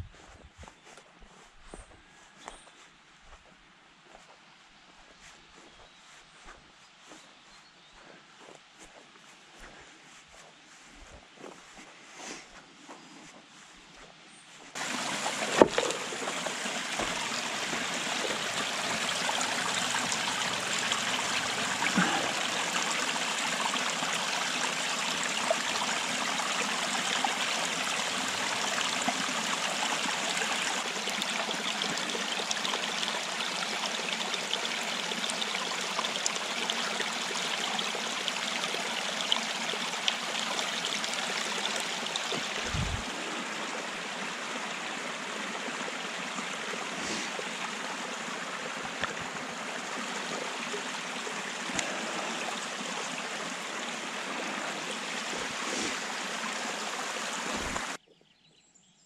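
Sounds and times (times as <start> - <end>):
running water: 14.8 - 58.0.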